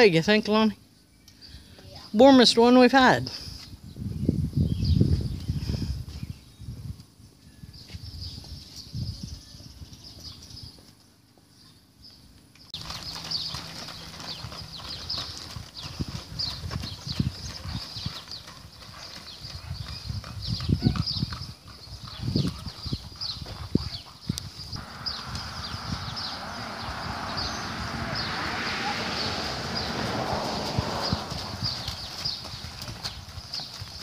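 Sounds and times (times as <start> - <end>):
hooves clip-clopping on gravel: 12.3 - 34.0.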